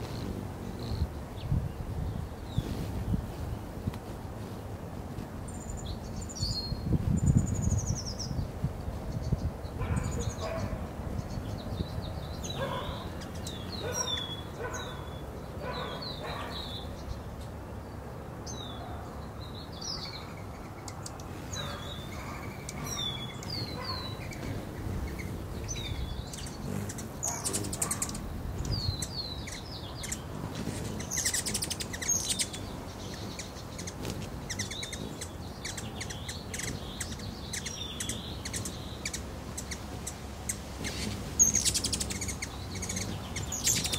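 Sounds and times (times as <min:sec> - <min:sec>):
hummingbird chip calls: 0:00.0 - 0:01.5, 0:09.2 - 0:17.2, 0:19.8 - 0:43.9.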